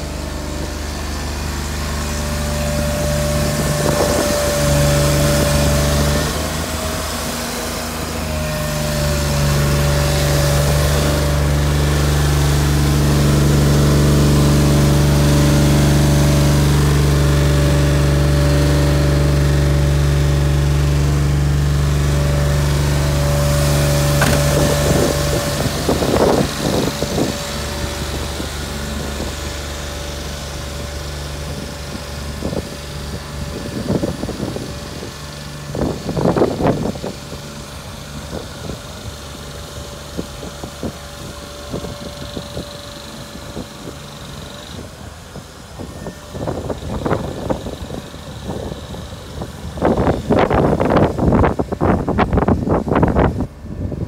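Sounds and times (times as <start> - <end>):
truck engine idling: 0.0 - 54.0
sharp knocks: 24.1 - 25.1.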